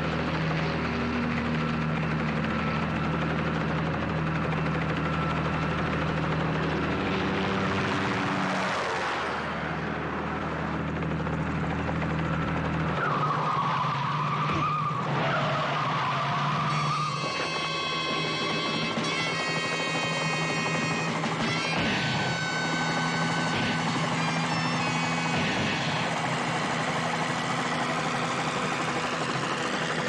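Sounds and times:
vehicle engines droning: 0.0s - 30.0s
tire squeal: 12.8s - 30.0s.

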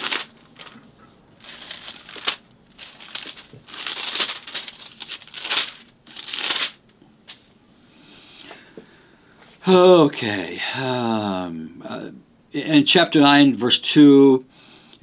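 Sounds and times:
pages rustling: 0.0s - 7.4s.

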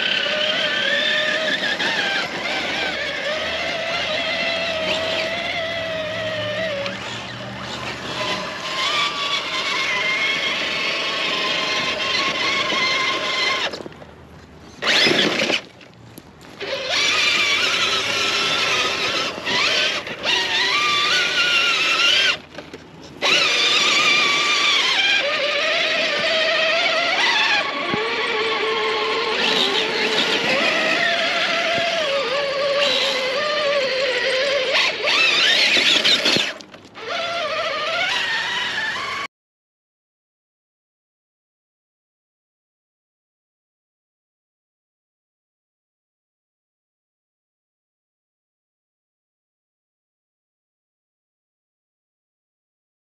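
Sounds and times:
electric motors whining: 0.0s - 14.0s, 14.6s - 15.8s, 16.5s - 39.3s.

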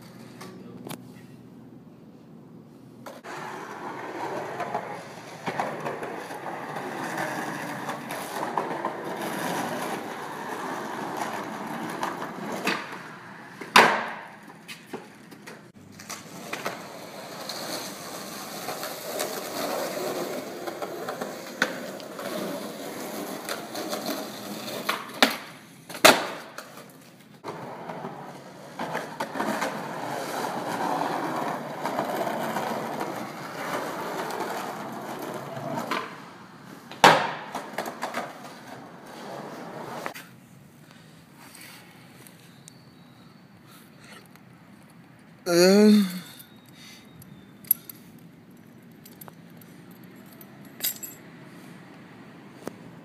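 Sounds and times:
skateboard wheels rolling on asphalt: 3.0s - 43.7s
skateboard deck clacking on pavement: 3.3s - 15.6s, 18.6s - 26.9s.

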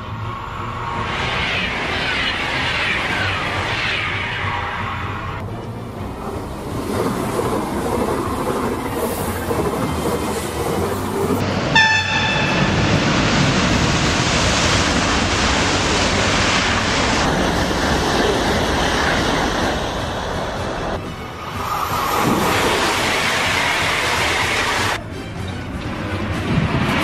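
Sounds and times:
rush of air and wheel noise: 0.0s - 25.0s, 25.7s - 27.0s
electric train passing: 0.0s - 27.0s
train horn blast: 11.7s - 13.1s.

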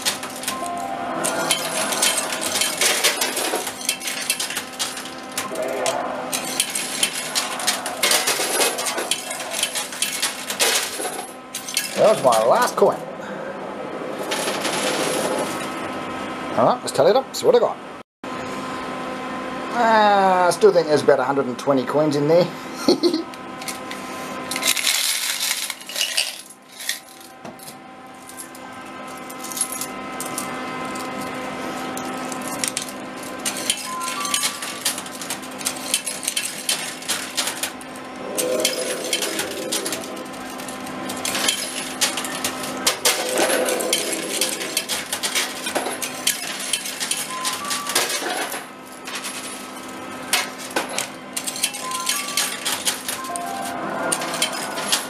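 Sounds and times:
metal coins clinking: 0.0s - 12.5s, 24.6s - 28.6s, 32.0s - 55.0s
steady electronic tones: 0.5s - 11.5s, 37.7s - 46.0s.

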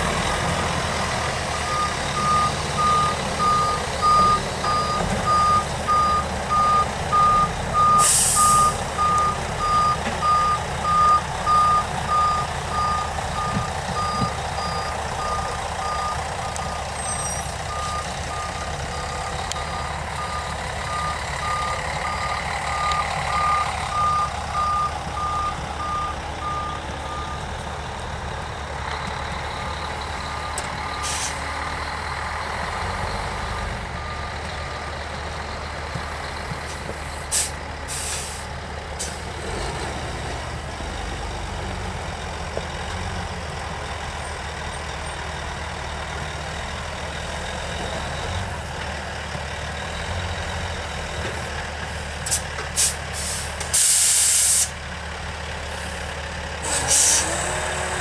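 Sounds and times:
truck engines running: 0.0s - 58.0s
air brake hissing: 7.9s - 8.9s, 31.0s - 31.4s, 37.2s - 39.3s, 52.3s - 54.8s, 56.6s - 57.6s.

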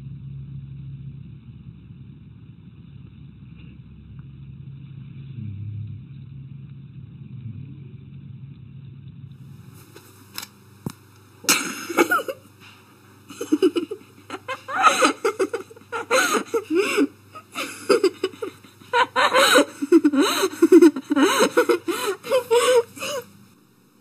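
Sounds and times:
person laughing: 11.5s - 12.5s, 13.3s - 23.3s.

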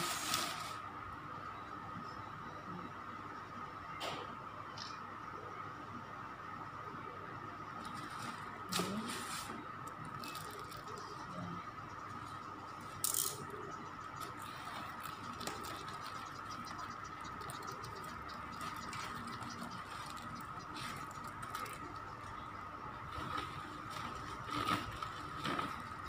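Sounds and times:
faint steady tone: 0.5s - 24.7s
paper rustling and crinkling: 7.8s - 11.1s, 23.1s - 26.0s.

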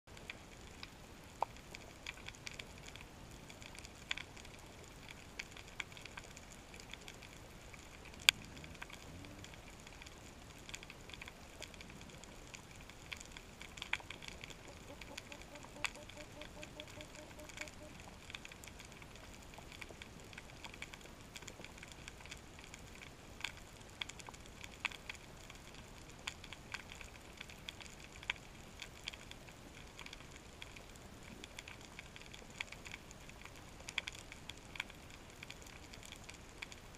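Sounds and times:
snapping shrimp clicks underwater: 1.4s - 36.9s.

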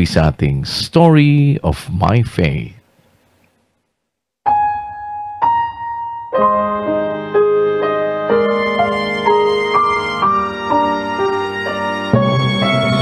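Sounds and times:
soft piano chords: 4.5s - 13.0s.

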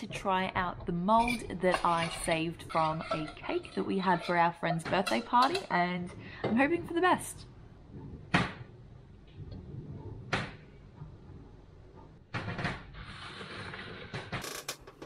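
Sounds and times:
soft scraping rustle: 1.8s - 4.5s.

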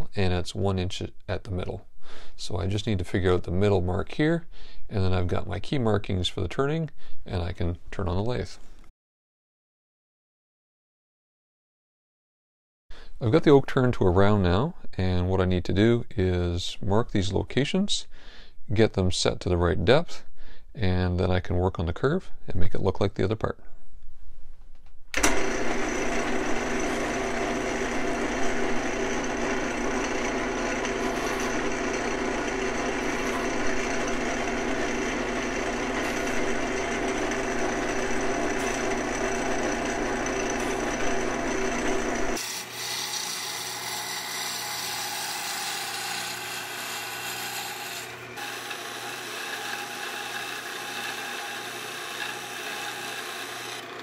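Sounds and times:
wood lathe running: 25.2s - 54.0s
parting tool rasping on wood: 28.3s - 53.9s.

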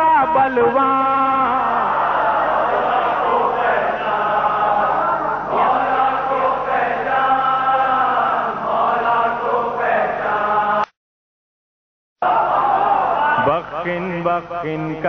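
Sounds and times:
man singing devotional song: 0.0s - 1.8s, 13.4s - 15.0s.

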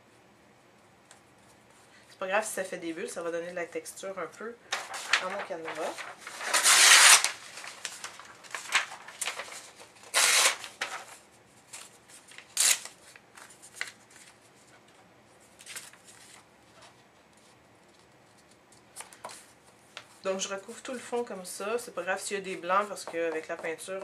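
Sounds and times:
paper rustling and crinkling: 4.7s - 20.2s.

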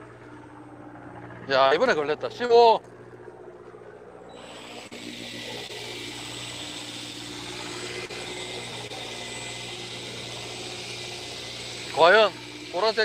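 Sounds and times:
boat engine hum: 0.0s - 13.0s
fishing reel whirring: 4.3s - 13.0s.

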